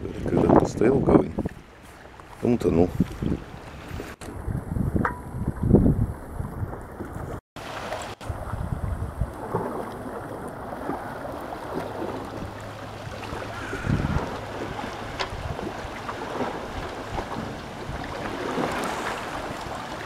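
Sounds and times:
wind buffeting microphone: 0.0s - 7.4s, 8.2s - 20.0s
small waves lapping on rocks: 7.6s - 20.0s.

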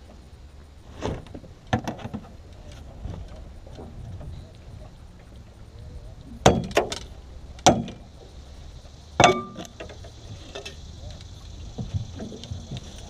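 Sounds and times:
metallic knocks on boat hull: 6.4s - 7.0s, 7.6s - 8.0s, 9.2s - 9.9s.

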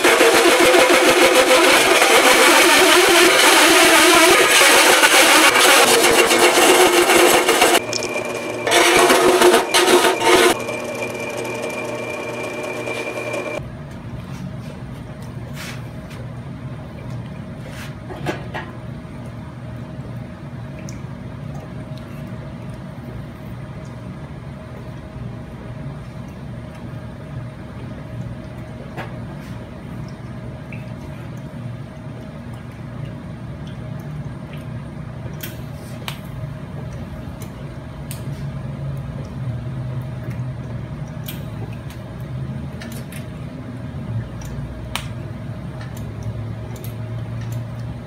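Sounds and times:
mill spindle whine: 0.0s - 13.6s.

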